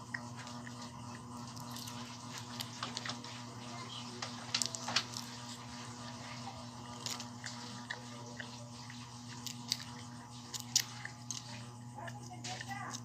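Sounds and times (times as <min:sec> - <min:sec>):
low electrical hum: 0:00.0 - 0:13.0
candy wrapper clicks and crinkles: 0:04.2 - 0:05.5.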